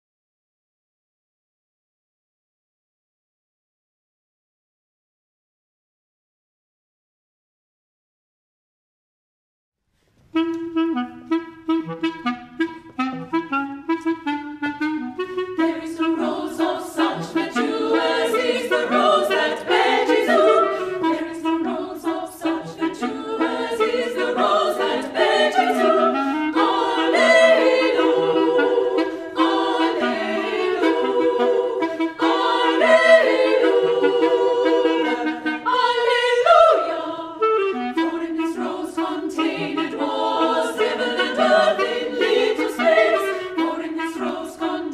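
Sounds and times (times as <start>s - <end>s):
clarinet: 10.2s - 44.9s
women's choir singing: 15.6s - 44.9s.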